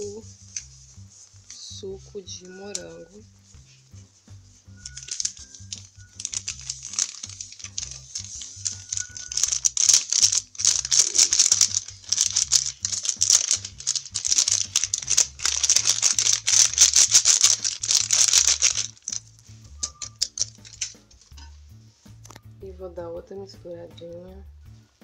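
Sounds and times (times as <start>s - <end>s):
powder rattling into plastic jar: 4.8s - 21.5s.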